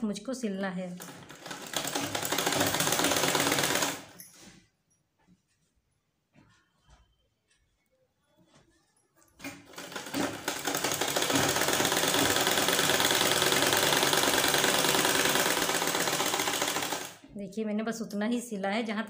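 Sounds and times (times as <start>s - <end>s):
sewing machine running: 0.9s - 4.2s, 9.4s - 17.3s.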